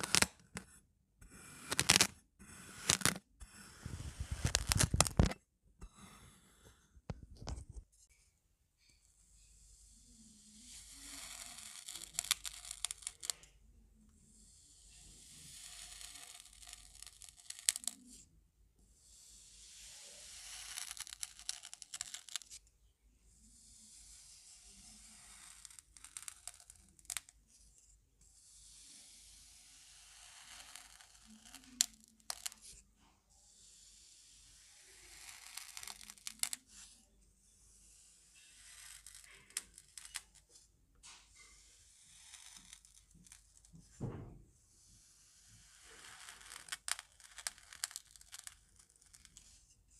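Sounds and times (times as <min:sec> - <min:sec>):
spoon slicing through kinetic sand: 0:00.0 - 0:05.3, 0:09.6 - 0:13.3, 0:14.4 - 0:18.2, 0:19.0 - 0:22.3, 0:23.5 - 0:27.2, 0:28.3 - 0:32.8, 0:33.5 - 0:37.0, 0:37.6 - 0:40.2, 0:41.4 - 0:43.0, 0:44.8 - 0:48.8.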